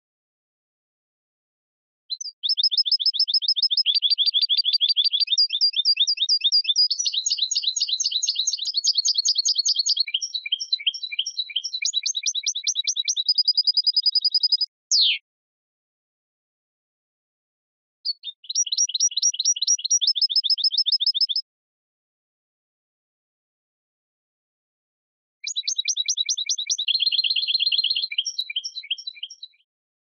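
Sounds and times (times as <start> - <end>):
goldfinch twittering song: 2.1 - 15.2, 18.1 - 21.4, 25.4 - 29.6.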